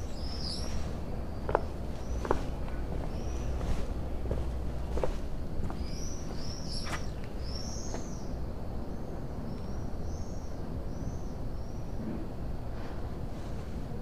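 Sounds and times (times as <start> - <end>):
bird chirping: 0.0 - 3.9, 5.7 - 8.3
low background rumble: 0.0 - 14.0.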